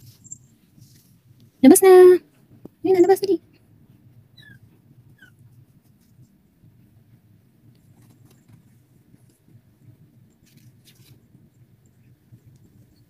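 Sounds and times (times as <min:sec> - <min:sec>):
steady low hum: 0:00.0 - 0:13.0
kitten claws scratching fabric: 0:03.9 - 0:06.8, 0:07.7 - 0:13.0.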